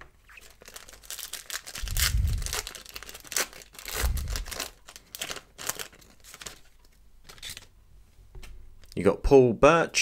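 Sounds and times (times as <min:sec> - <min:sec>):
foil wrapper tearing and crinkling: 0:00.3 - 0:06.7
dull low thumps: 0:01.8 - 0:02.7, 0:04.0 - 0:04.6.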